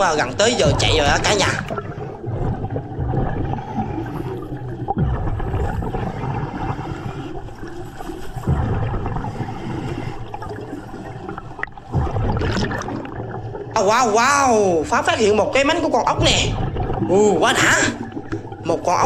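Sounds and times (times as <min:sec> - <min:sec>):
underwater air bubbles gurgling: 0:00.0 - 0:19.0.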